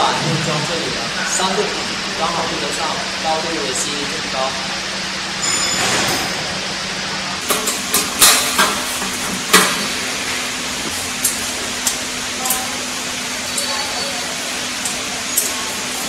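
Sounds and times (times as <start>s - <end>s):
steady low hum: 0.0s - 16.0s
metal knocks and clanks: 7.4s - 12.0s.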